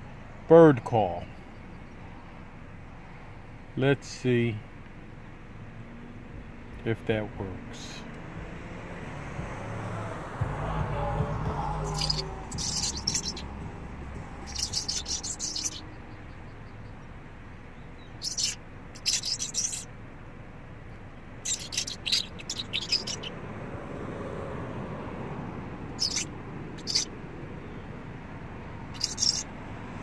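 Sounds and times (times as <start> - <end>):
person imitating bird call: 11.4 - 13.4.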